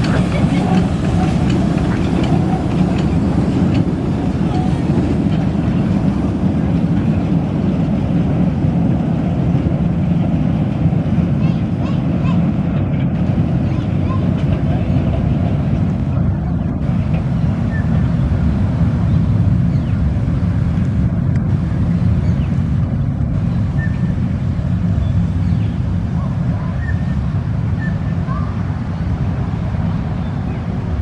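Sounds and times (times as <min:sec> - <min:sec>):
train carriages rumbling on track: 0:00.0 - 0:31.0
bird chirps: 0:23.5 - 0:24.1, 0:26.6 - 0:28.5.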